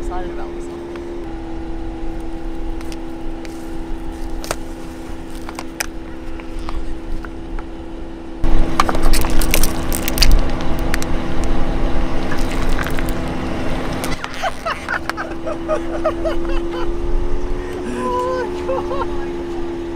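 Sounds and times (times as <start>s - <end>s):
car idling hum: 0.0s - 19.9s
plastic tub creaking and cracking: 8.7s - 11.1s, 12.2s - 13.2s, 14.0s - 14.9s.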